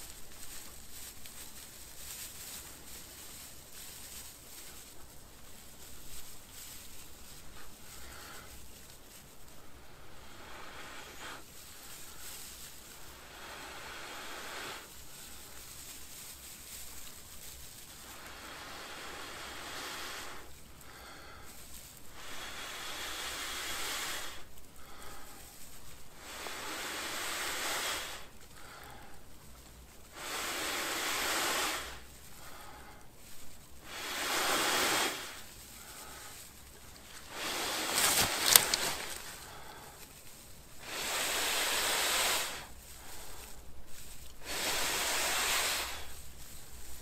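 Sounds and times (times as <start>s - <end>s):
sharp crackles: 0.0s - 47.0s
person blowing on tinder: 9.8s - 12.2s, 13.0s - 15.6s, 18.1s - 21.5s, 22.1s - 25.5s, 26.1s - 29.0s, 30.1s - 33.0s, 33.8s - 36.3s, 37.2s - 40.0s, 40.8s - 43.7s, 44.3s - 46.8s.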